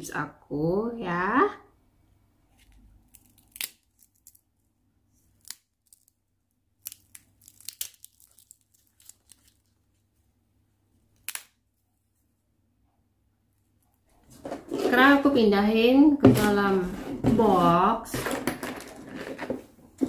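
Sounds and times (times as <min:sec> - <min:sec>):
potato chips snapping: 0:03.1 - 0:04.5, 0:05.3 - 0:06.2, 0:06.8 - 0:09.7.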